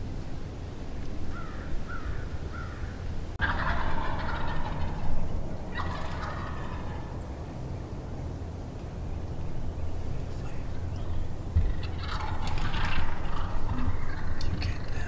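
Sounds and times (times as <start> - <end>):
short rising turkey calls: 1.3 - 7.4, 10.0 - 15.0
turkey gobbling: 1.3 - 7.4, 10.2 - 15.0.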